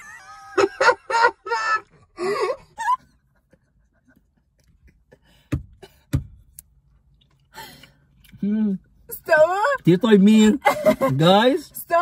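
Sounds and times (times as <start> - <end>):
person laughing: 0.0 - 5.2, 10.6 - 11.3.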